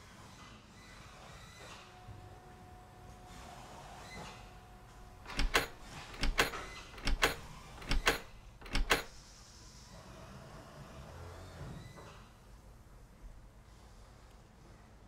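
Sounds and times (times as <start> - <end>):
metal bolt latch clacking: 5.2 - 9.1.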